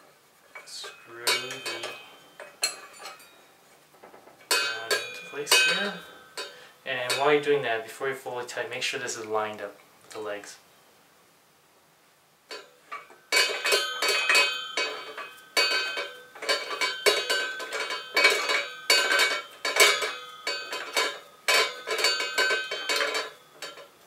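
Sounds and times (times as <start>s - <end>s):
metal parts clinking and rattling: 0.4s - 7.5s, 12.5s - 24.0s.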